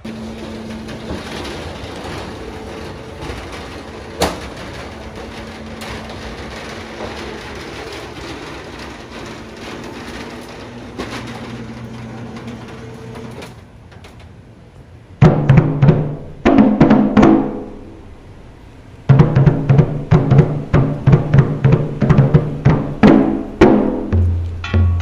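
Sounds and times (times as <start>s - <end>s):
shutter slats rattling: 0.2s - 13.6s.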